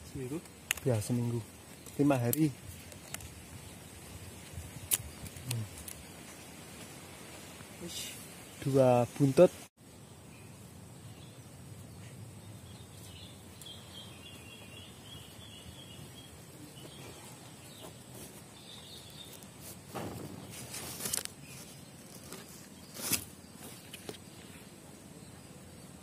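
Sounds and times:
rustle of leaves and twigs: 0.0s - 26.0s
high bird chirping: 10.2s - 18.0s.

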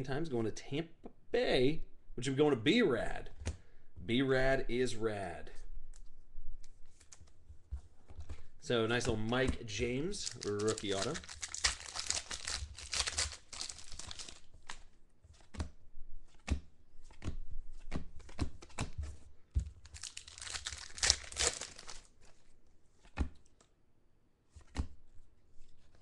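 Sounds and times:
plastic wrapping tearing and crumpling: 10.1s - 14.9s, 19.8s - 22.2s
cards clicking and snapping: 10.3s - 19.0s, 19.8s - 22.1s.

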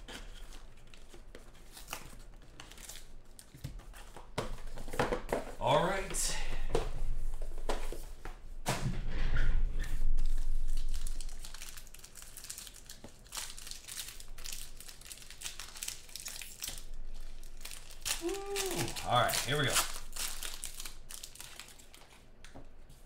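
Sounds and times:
foil wrapper crinkling: 10.2s - 22.3s.

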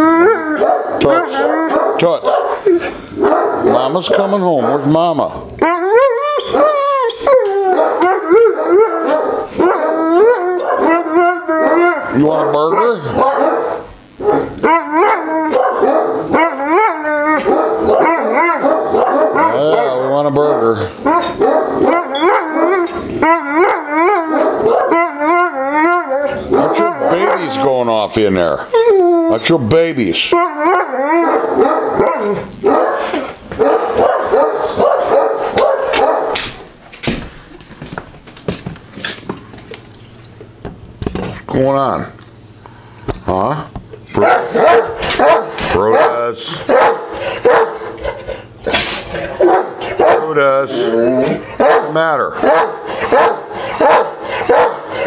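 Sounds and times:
dog howling barks: 0.0s - 5.0s, 5.6s - 27.8s, 30.3s - 36.4s, 44.2s - 47.9s, 49.4s - 55.0s.

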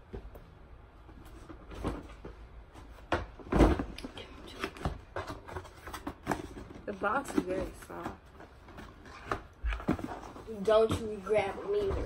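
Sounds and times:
shoebox knocks and thumps: 1.4s - 4.0s.

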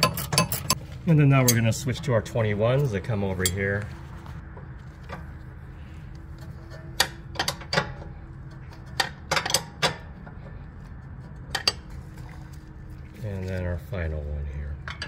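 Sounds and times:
wrenches clinking on metal bolts: 0.0s - 0.8s, 6.5s - 10.2s
steady low hum: 0.0s - 15.0s.

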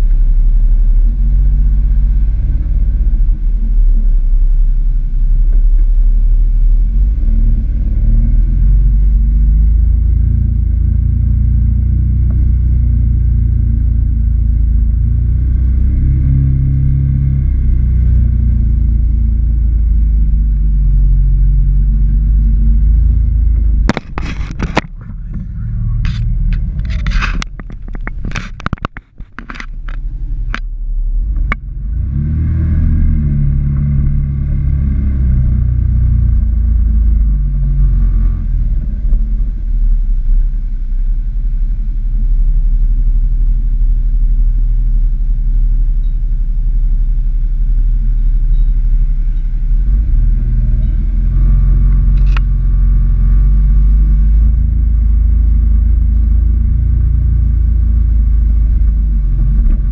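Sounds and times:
vehicle engine running: 0.0s - 59.9s
branches scraping vehicle: 23.8s - 30.6s.

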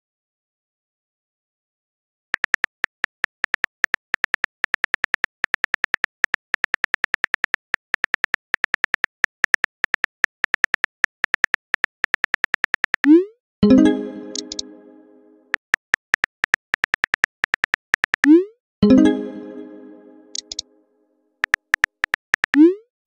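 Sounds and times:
phone keyboard typing clicks: 2.4s - 13.2s, 14.3s - 14.7s, 15.5s - 18.4s, 20.3s - 20.6s, 21.4s - 22.6s.

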